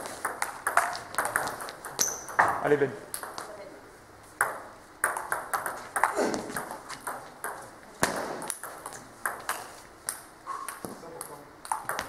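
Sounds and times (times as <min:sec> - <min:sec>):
table tennis ball clicking: 0:00.2 - 0:02.4, 0:03.1 - 0:03.6, 0:04.4 - 0:07.6, 0:08.4 - 0:12.0.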